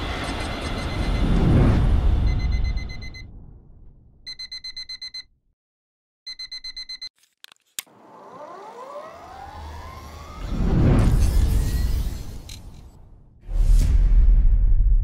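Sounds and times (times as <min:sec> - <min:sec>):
phone alarm beeping rapidly: 0:00.4 - 0:01.3, 0:02.3 - 0:03.2, 0:04.3 - 0:05.3, 0:06.3 - 0:07.1
electric motorcycle motor whine: 0:07.9 - 0:10.7.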